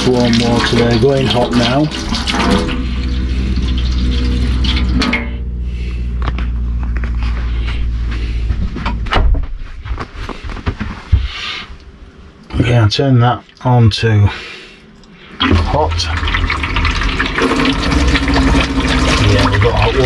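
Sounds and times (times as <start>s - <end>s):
water running into metal sink: 0.0s - 5.4s, 15.4s - 20.0s
steady low hum: 0.0s - 20.0s.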